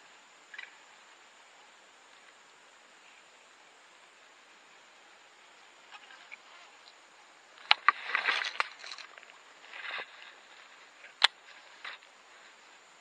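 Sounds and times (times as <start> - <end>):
rustling and scraping of rod: 7.6 - 12.6.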